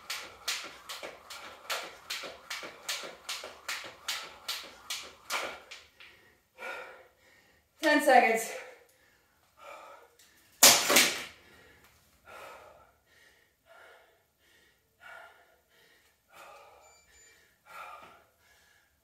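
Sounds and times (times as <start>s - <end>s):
woman panting: 5.3s - 7.6s, 8.4s - 10.2s, 11.4s - 16.8s, 17.6s - 19.0s.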